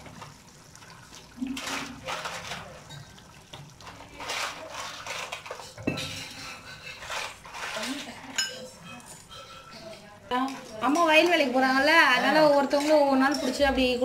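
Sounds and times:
food splashing into gravy: 0.0s - 5.7s.

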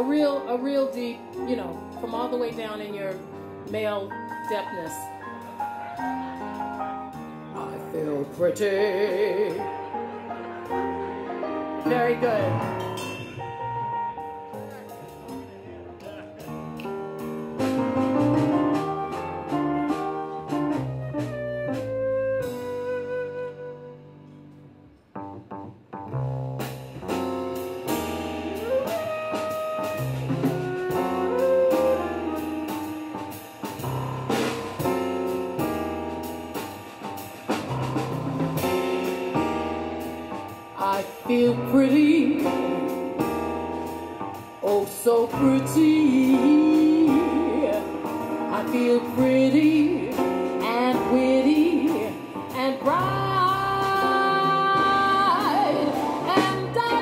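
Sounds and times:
drum kit playing: 0.0s - 23.4s, 25.2s - 57.0s
grand piano: 0.0s - 57.0s
upright bass: 0.0s - 57.0s
woman singing: 7.6s - 9.8s, 11.8s - 12.7s, 40.8s - 43.2s, 44.6s - 57.0s.

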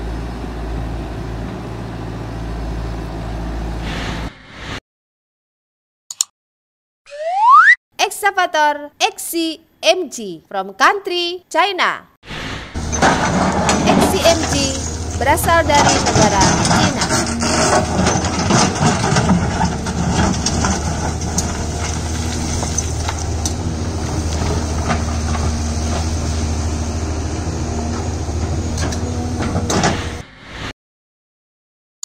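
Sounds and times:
excavator diesel engine: 0.0s - 4.3s, 12.6s - 30.2s
rock clattering and scraping: 12.8s - 25.6s.

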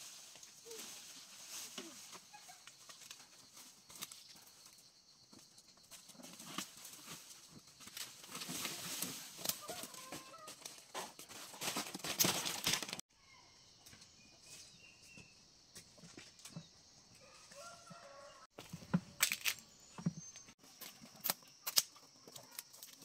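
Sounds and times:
leaves and branches crackling: 0.0s - 4.5s, 6.1s - 13.0s.

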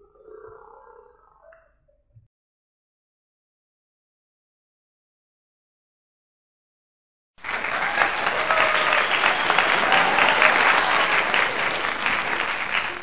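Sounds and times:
crowd applause: 7.4s - 13.0s.

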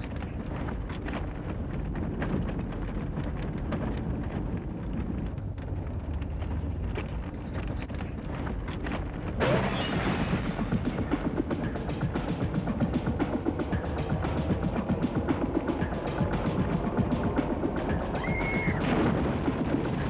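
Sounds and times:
low rumble with crackling clicks: 0.0s - 20.0s
fast pulsing drum beat: 7.6s - 20.0s
loud rushing burst: 9.4s - 17.2s.

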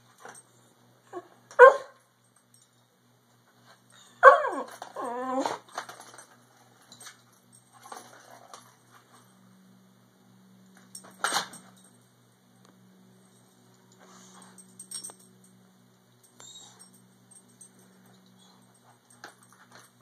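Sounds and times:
puppy whining: 4.0s - 5.7s, 16.4s - 16.9s
puppy yelping: 4.2s - 5.6s.

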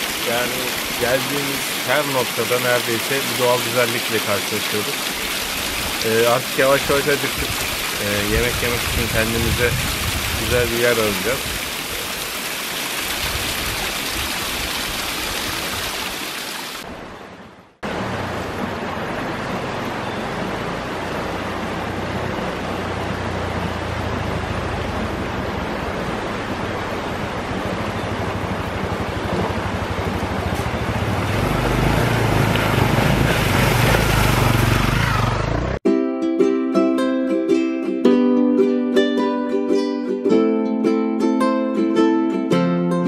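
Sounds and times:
wind rushing: 7.4s - 10.6s
motorcycle engine running: 28.0s - 35.8s.

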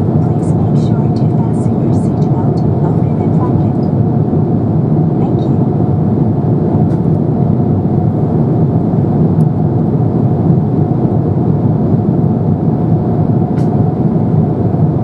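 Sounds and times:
airplane cabin noise: 0.0s - 15.0s.

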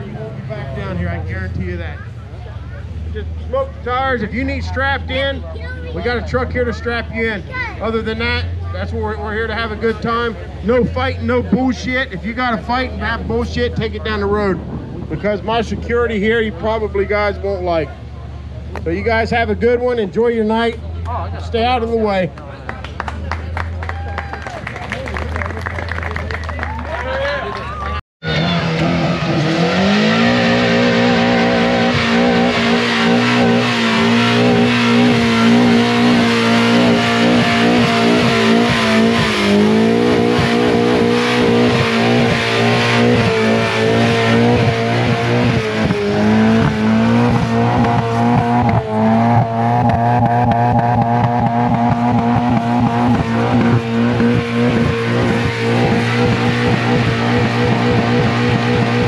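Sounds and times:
car engine revving high: 28.2s - 59.0s.

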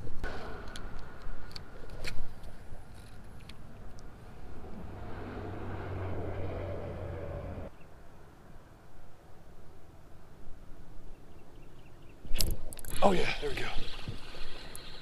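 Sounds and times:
vehicle engine hum: 0.3s - 7.8s.

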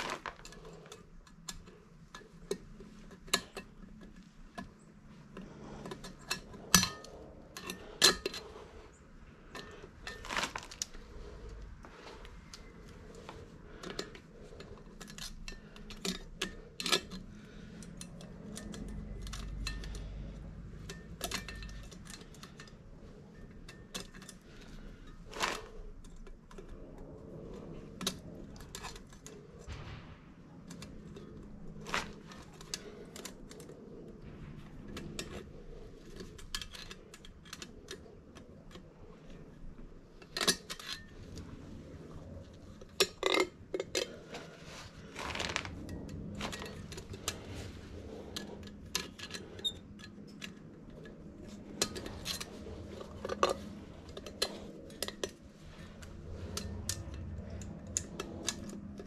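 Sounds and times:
low rumble: 26.6s - 36.5s, 44.2s - 49.2s.

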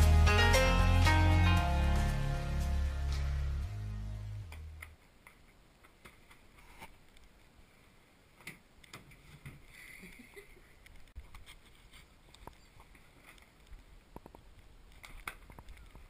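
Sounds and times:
background music with bass line: 0.0s - 4.9s.

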